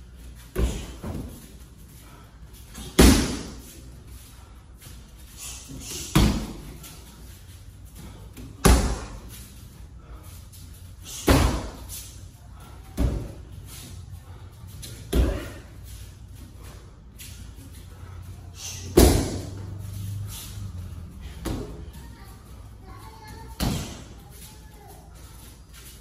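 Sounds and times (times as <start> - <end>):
kicks slapping kick shield: 3.0 - 3.5, 19.0 - 19.4.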